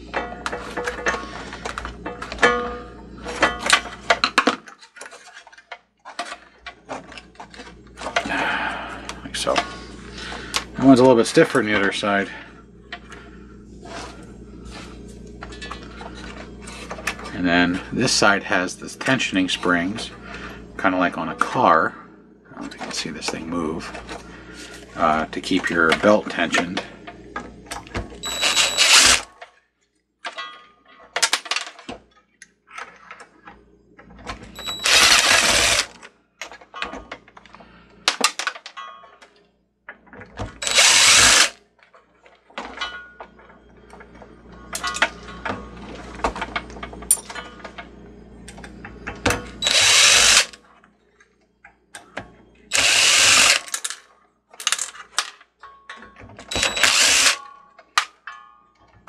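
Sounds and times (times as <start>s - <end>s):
metal parts clicking: 27.7s - 29.6s, 30.2s - 33.3s, 34.2s - 45.6s, 46.2s - 50.6s, 51.9s - 59.0s
cordless drill running: 28.2s - 29.3s, 34.6s - 35.9s, 40.6s - 41.6s, 49.6s - 50.6s, 52.7s - 53.7s, 56.5s - 57.4s.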